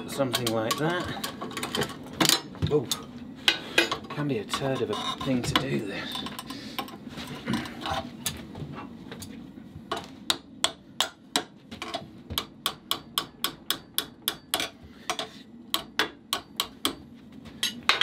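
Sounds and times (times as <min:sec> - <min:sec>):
hammer striking steel: 0:12.4 - 0:17.0.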